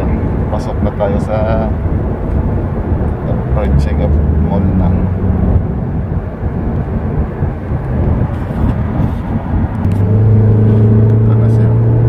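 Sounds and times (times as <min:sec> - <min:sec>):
car cabin road rumble: 0:00.0 - 0:12.0
steady low hum: 0:00.0 - 0:12.0.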